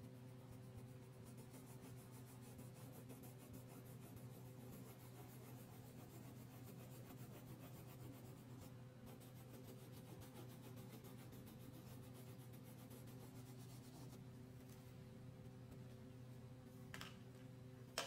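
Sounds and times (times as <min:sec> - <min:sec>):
steady low hum: 0:00.0 - 0:18.0
crayon scratching on paper: 0:00.2 - 0:14.2.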